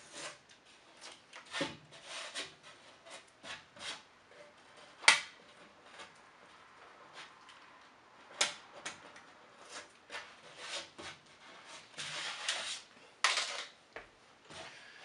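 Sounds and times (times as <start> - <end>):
knife scraping drywall paper: 0.0 - 6.2, 8.9 - 13.7.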